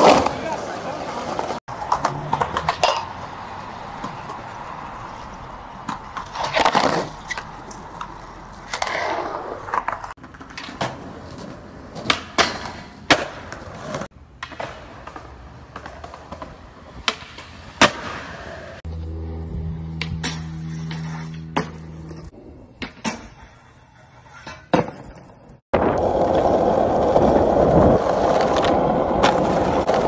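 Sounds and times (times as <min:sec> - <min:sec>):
skateboard scraping metal rail: 0:00.0 - 0:03.3, 0:05.8 - 0:30.0
wheels rolling on concrete: 0:00.0 - 0:30.0
skateboard pops and slaps: 0:05.8 - 0:18.4, 0:22.8 - 0:23.4, 0:24.4 - 0:26.6, 0:27.2 - 0:30.0.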